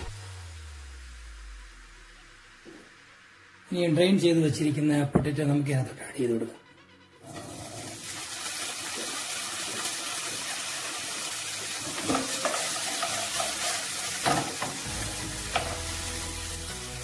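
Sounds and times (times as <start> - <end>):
potatoes sizzling in hot oil: 7.2 - 17.0.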